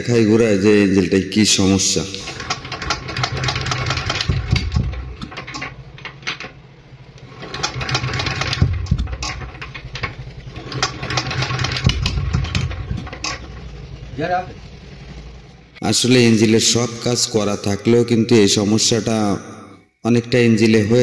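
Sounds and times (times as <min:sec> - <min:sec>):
diesel engine firing unevenly: 0:01.5 - 0:17.7.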